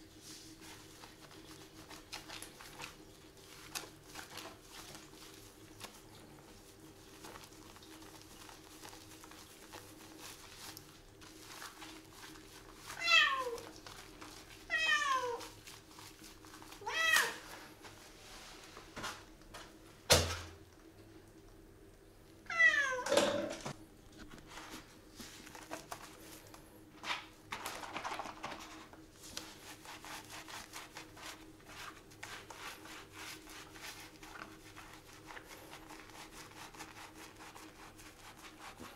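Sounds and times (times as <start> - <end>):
scrubbing wet fur: 0.0 - 19.3, 29.0 - 38.9
cat meowing: 13.0 - 13.6, 14.7 - 15.4, 16.8 - 17.4, 22.5 - 23.1.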